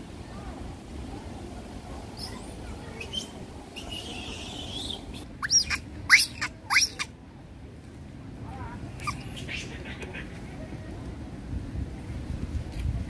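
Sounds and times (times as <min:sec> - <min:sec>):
young monkey squealing: 0:03.0 - 0:07.1, 0:09.0 - 0:10.4.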